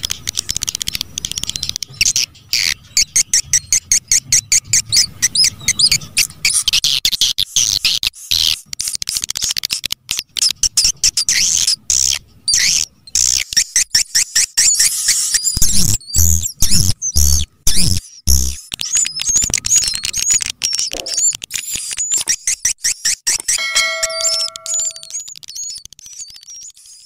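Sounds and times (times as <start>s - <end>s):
rapid dry clicks: 0.0s - 4.2s, 6.1s - 11.8s
warbling twittering chirps: 23.6s - 25.2s.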